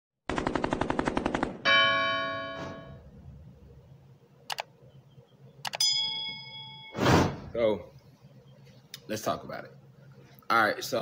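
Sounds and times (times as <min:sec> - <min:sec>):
bright bell chime: 0:05.8 - 0:07.0.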